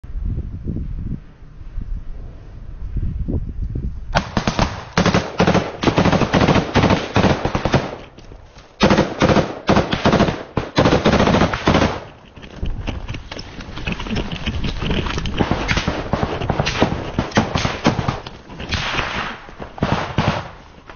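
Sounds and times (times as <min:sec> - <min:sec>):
automatic rifle fire: 0:04.2 - 0:08.1, 0:08.8 - 0:12.1, 0:15.4 - 0:20.6.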